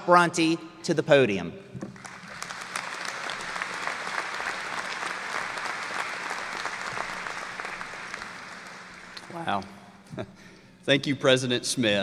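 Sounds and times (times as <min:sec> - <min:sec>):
audience applauding: 0:01.9 - 0:09.6.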